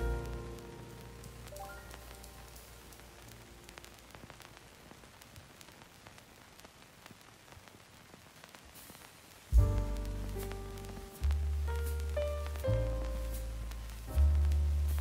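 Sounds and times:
background music: 0.0s - 4.5s, 9.6s - 15.0s
crackling clicks: 0.0s - 15.0s
faint static hiss: 0.0s - 15.0s.

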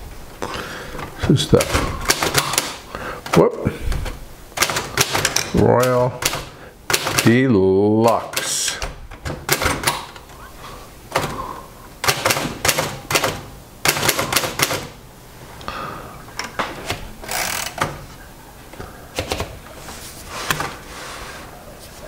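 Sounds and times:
typewriter keys clacking: 1.5s - 3.4s, 4.6s - 7.4s, 12.0s - 15.0s.

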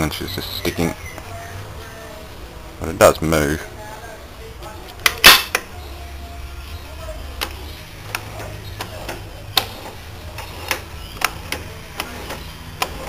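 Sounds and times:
gears clicking: 7.2s - 13.0s.

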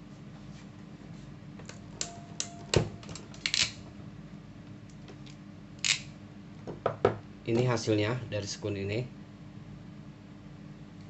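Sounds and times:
crimping pliers clicking: 2.0s - 3.8s.

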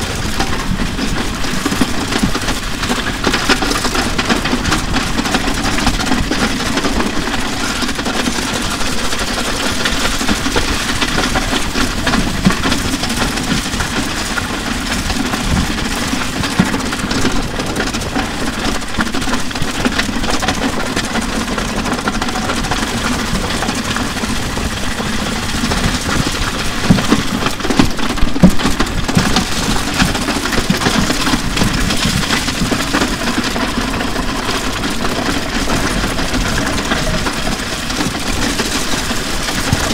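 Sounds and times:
scraping rattle on asphalt: 0.0s - 39.9s.

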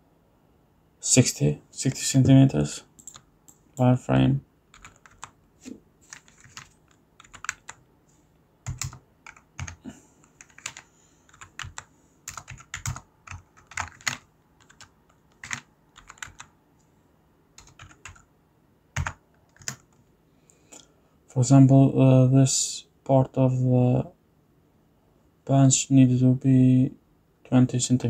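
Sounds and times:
keyboard typing: 3.0s - 3.6s, 4.7s - 5.4s, 6.1s - 7.8s, 8.6s - 16.5s, 17.6s - 18.3s, 19.0s - 20.1s.

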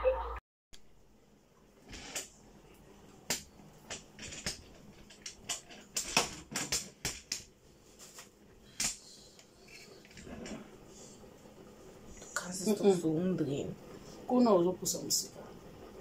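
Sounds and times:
kitchen items clicking and knocking: 3.3s - 7.5s.

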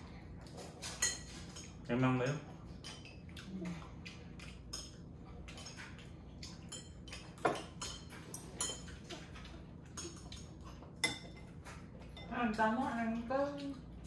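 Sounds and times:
utensils clinking against dishes: 0.4s - 3.2s, 6.4s - 13.8s.

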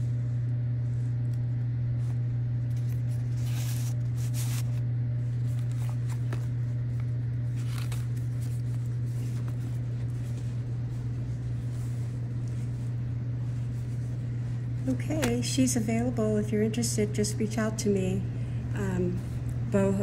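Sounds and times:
low hum: 0.0s - 20.0s
paper pages turning: 2.0s - 14.2s.

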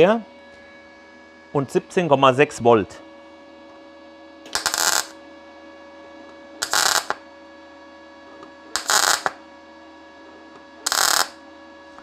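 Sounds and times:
welder hum: 4.5s - 5.2s, 6.6s - 7.3s, 8.7s - 9.4s, 10.8s - 11.4s
welding arc crackling: 4.5s - 5.2s, 6.6s - 7.2s, 8.8s - 9.4s, 10.9s - 11.4s.

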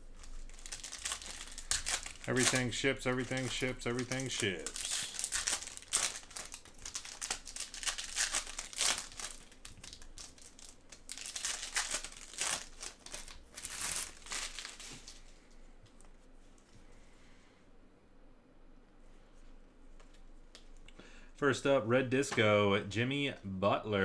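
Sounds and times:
wrappers crinkling and rustling: 0.0s - 16.7s.

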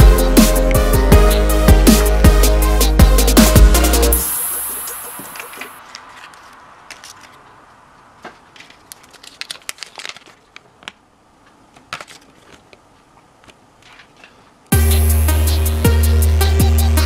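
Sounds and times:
thin paper crinkling: 5.4s - 7.6s, 8.2s - 11.0s, 11.8s - 14.5s.

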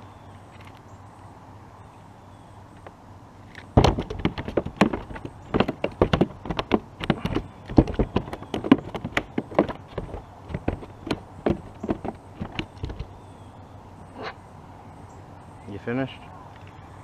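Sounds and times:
fish flopping on plastic deck: 3.8s - 13.1s.

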